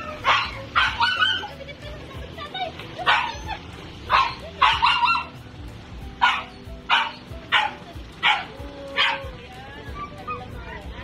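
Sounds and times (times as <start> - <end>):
dog barking excitedly: 0.0 - 1.6, 3.0 - 5.4, 6.2 - 9.3.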